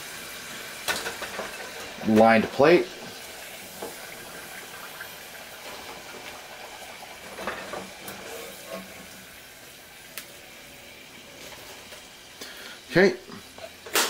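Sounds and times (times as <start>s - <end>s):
hot oil hissing in saucepan: 0.0s - 14.0s.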